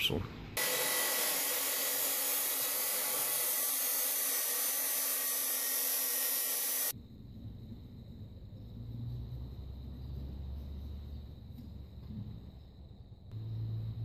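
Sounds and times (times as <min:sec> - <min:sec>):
chop saw grinding metal: 0:00.6 - 0:06.9.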